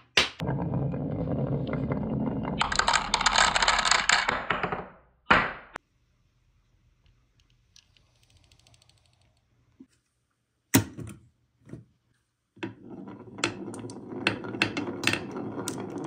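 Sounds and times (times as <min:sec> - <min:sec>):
marbles clacking together: 0:00.4 - 0:04.5, 0:13.2 - 0:16.0
marbles rolling down wooden slope: 0:00.4 - 0:04.8, 0:12.6 - 0:16.0.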